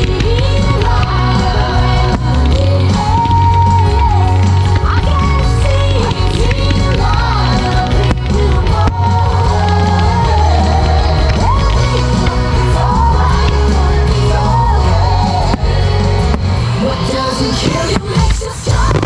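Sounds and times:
heavy bass line: 0:00.0 - 0:19.0
pop song with lead singer: 0:00.0 - 0:19.0.

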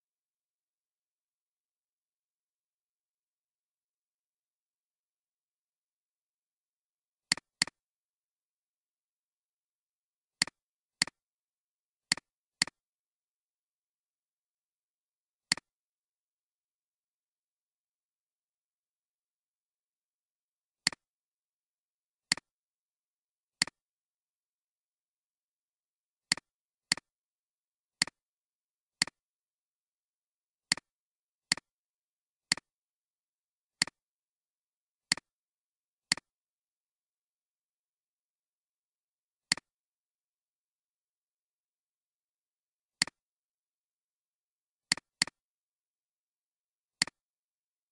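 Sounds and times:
computer mouse clicks: 0:07.3 - 0:07.8, 0:15.5 - 0:15.7, 0:30.7 - 0:30.9, 0:35.1 - 0:35.3, 0:39.5 - 0:39.7, 0:44.9 - 0:45.4.

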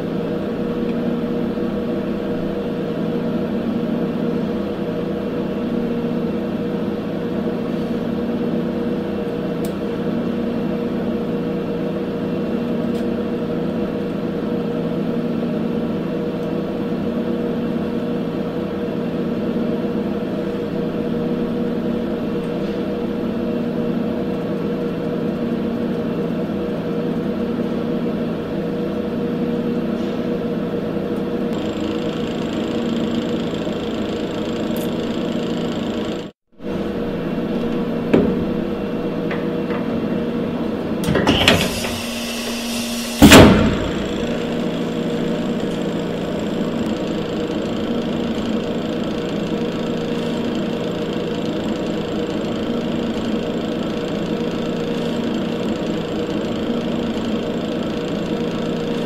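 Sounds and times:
steady machine hum: 0:00.0 - 0:59.0
loud metal clunk: 0:41.0 - 0:45.0.

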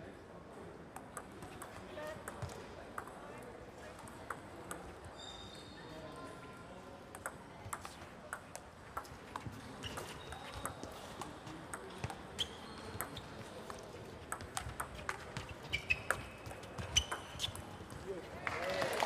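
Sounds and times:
table tennis ball clicking: 0:04.0 - 0:04.9, 0:07.1 - 0:17.8.

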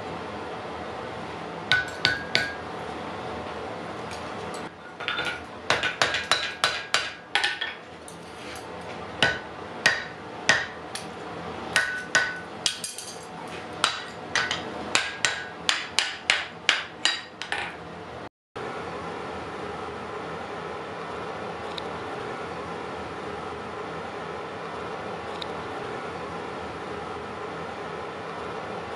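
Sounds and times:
hammer striking iron on anvil: 0:01.7 - 0:02.7, 0:05.0 - 0:07.8, 0:09.2 - 0:11.1, 0:11.7 - 0:17.8.

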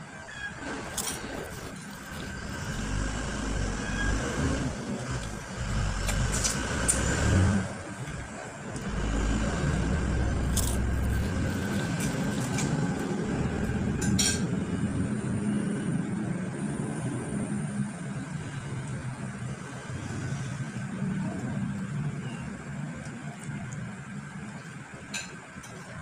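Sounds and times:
low rumbling: 0:00.7 - 0:18.7.

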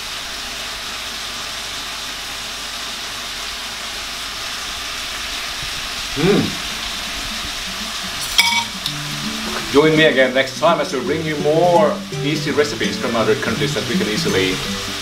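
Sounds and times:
steady hiss: 0:00.0 - 0:15.0
man humming while chewing: 0:06.1 - 0:08.0.

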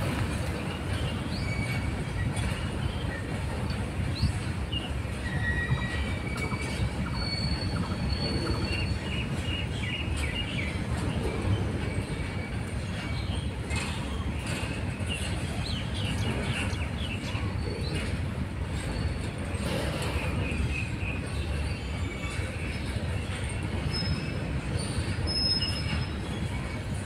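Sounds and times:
train wheels rumbling on rail: 0:00.0 - 0:27.0
high wheel squeals: 0:05.1 - 0:09.1.

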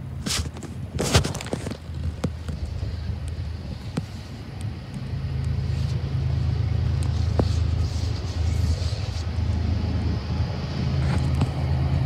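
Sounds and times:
diesel locomotives rumbling: 0:00.0 - 0:12.0.

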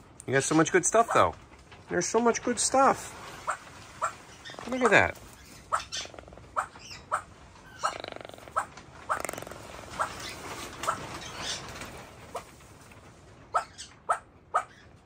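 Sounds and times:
toucan croaking: 0:03.4 - 0:11.4, 0:13.5 - 0:14.8.

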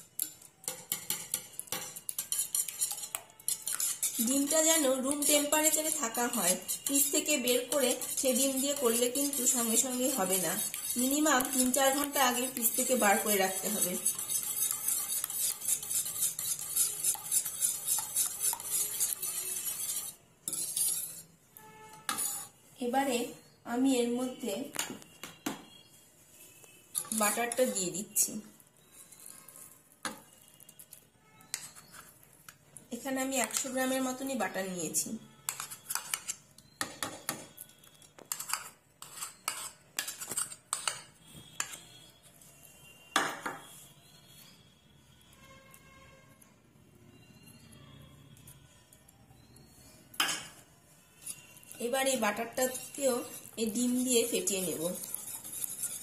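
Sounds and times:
metal spoon clinking and scraping: 0:00.0 - 0:22.6, 0:26.9 - 0:28.0, 0:28.8 - 0:32.6, 0:35.4 - 0:42.2, 0:50.2 - 0:56.0
whisk beating eggs in bowl: 0:00.2 - 0:21.2, 0:51.6 - 0:56.0.

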